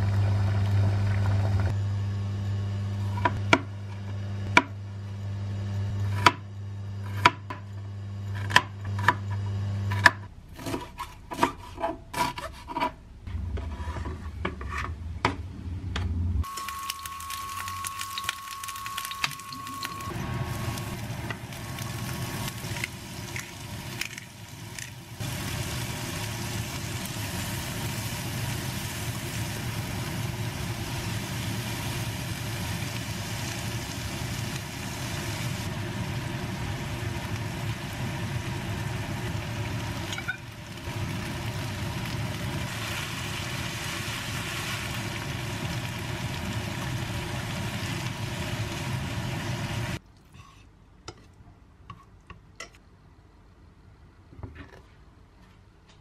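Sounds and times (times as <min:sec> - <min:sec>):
frying pan sizzling: 0:16.4 - 0:50.0.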